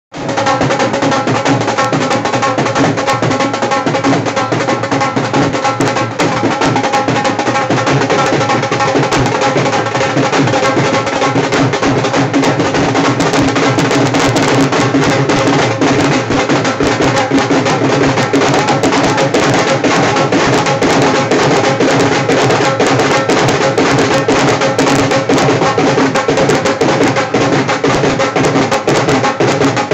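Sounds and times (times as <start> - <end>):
fast drumming dance beat: 0.2 - 29.9.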